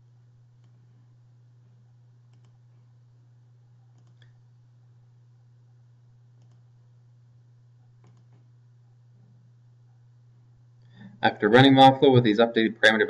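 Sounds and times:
steady low hum: 0.0s - 13.0s
computer mouse clicks: 0.6s - 0.8s, 2.3s - 2.6s, 3.9s - 4.4s, 6.4s - 6.7s, 8.0s - 8.5s.

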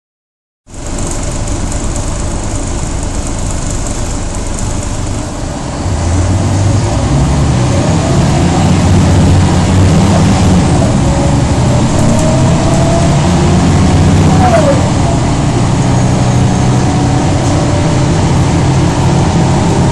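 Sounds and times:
bus diesel engine running: 0.7s - 19.9s
gearbox whine: 0.7s - 19.9s.

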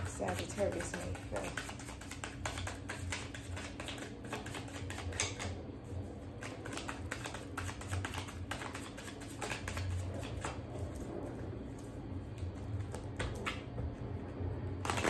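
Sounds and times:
cards being shuffled: 0.0s - 5.6s, 6.3s - 11.1s, 14.8s - 15.0s.

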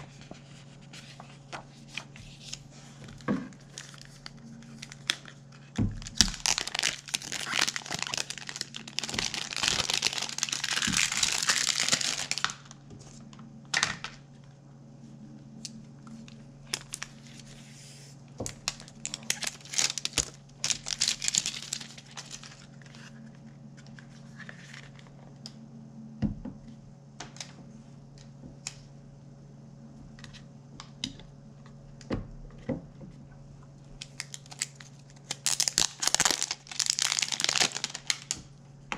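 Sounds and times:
steady low hum: 0.0s - 38.9s
plastic wrap crinkling: 1.9s - 13.2s, 16.2s - 17.7s, 18.4s - 25.1s, 34.0s - 38.5s.

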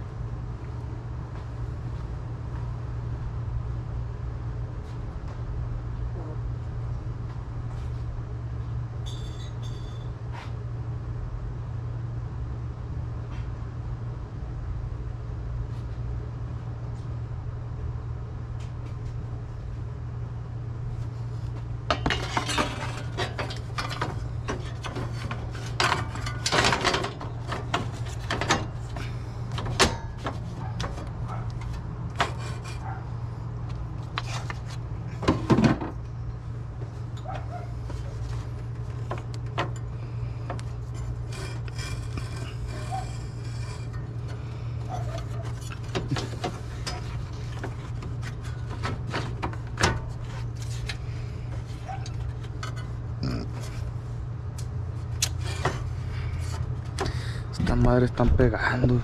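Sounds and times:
steady low hum: 0.0s - 59.0s
metal tools clinking and clanking: 9.0s - 10.1s, 21.9s - 31.0s.

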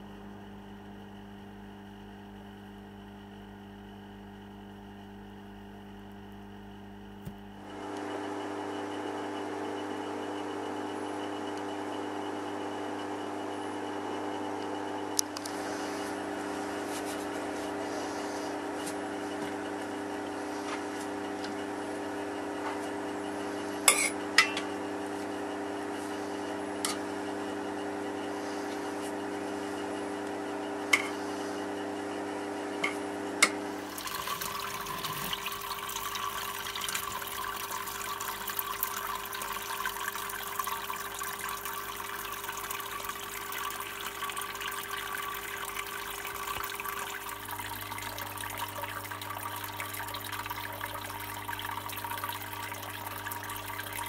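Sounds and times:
pump motor hum: 0.0s - 54.0s
water trickling and splashing: 33.8s - 54.0s.

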